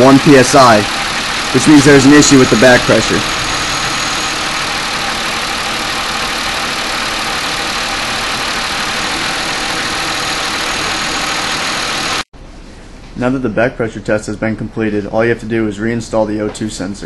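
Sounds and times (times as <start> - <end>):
car engine idling: 0.0 - 12.3.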